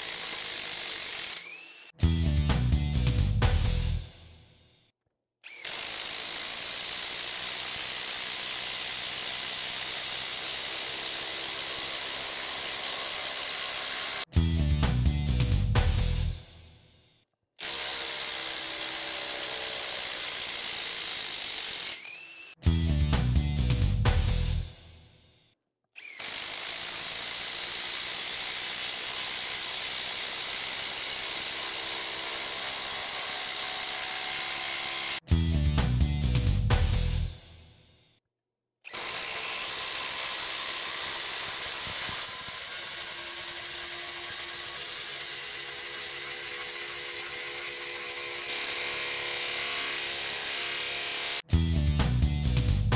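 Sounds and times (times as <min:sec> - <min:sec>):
impact driver hammering screw: 0:00.0 - 0:02.0, 0:05.5 - 0:14.3, 0:17.6 - 0:22.6, 0:26.0 - 0:35.2, 0:38.9 - 0:51.4
impact driver hammering: 0:38.9 - 0:51.4.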